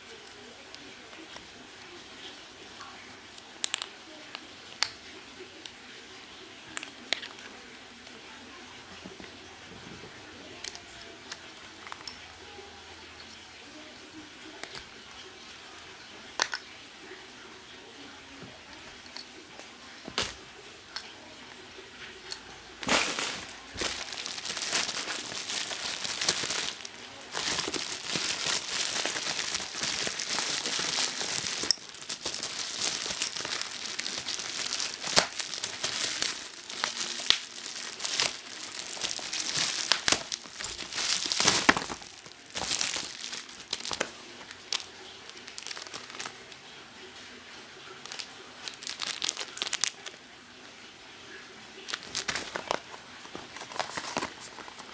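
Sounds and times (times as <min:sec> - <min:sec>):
bubble wrap crinkling: 0:22.3 - 0:46.7, 0:47.8 - 0:50.2, 0:51.8 - 0:54.9.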